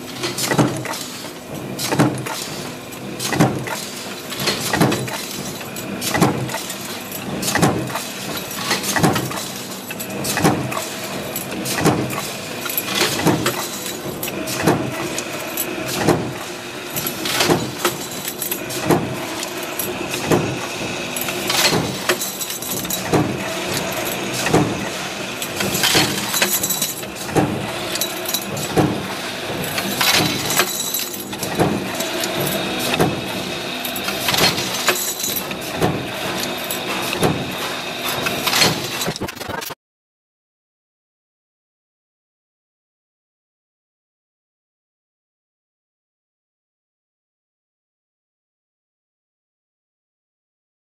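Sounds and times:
machine mechanical din: 0:00.1 - 0:39.8.

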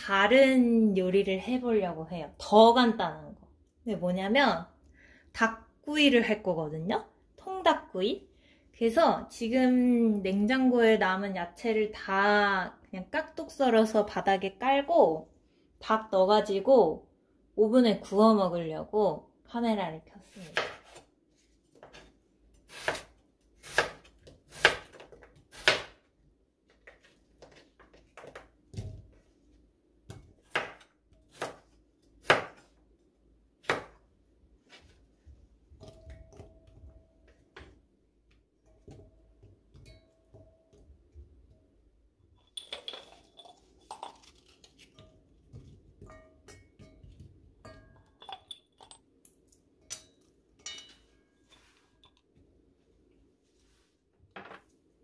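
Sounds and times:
knife chopping on cutting board: 0:20.5 - 0:21.0, 0:22.7 - 0:26.0, 0:30.1 - 0:32.7
kitchenware taps and clinks: 0:45.0 - 0:49.0.

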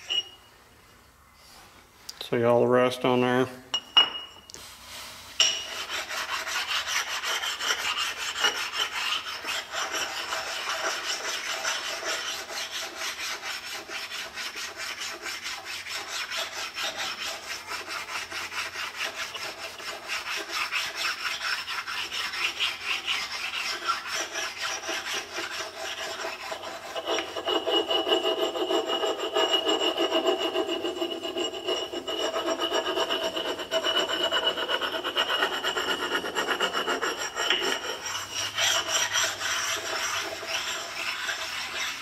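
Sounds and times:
stone scraping metal: 0:00.0 - 0:00.4, 0:05.4 - 0:42.0.

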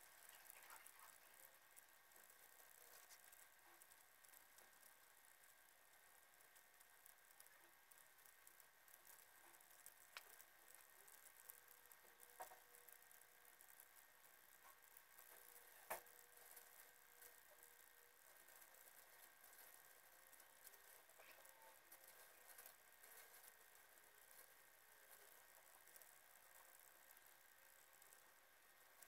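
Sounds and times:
faint clicks: 0:00.0 - 0:29.0
faint hiss: 0:00.0 - 0:29.0.

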